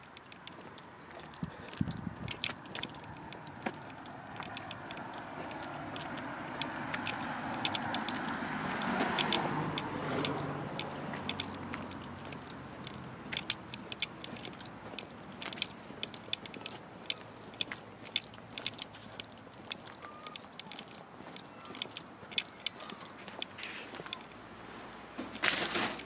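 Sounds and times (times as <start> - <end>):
car passing: 1.8 - 19.6.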